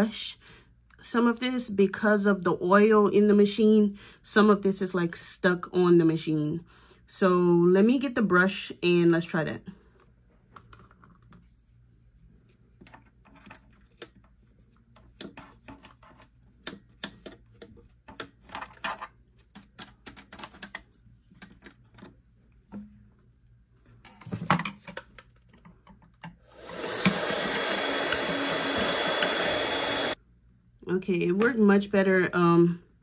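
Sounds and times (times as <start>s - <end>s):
handheld mini vacuum running: 26.4s - 30.2s.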